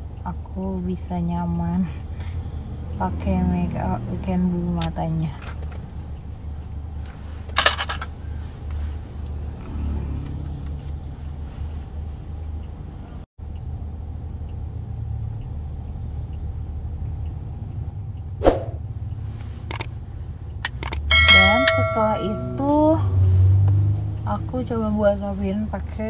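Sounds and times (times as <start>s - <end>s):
car engine and road noise: 0.0s - 26.0s
sharp clicks: 20.6s - 21.1s.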